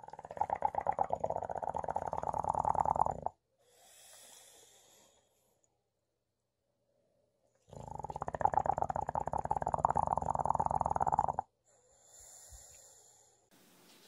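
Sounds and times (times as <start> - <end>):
dog snoring: 0.1 - 3.4, 7.7 - 11.5.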